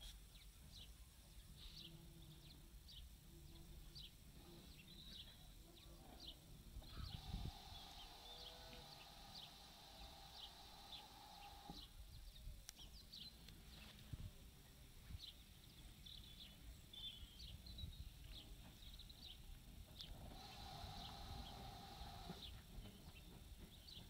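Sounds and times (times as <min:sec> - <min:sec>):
faint steady tone: 0:00.0 - 0:13.7
small birds chirping: 0:00.0 - 0:24.0.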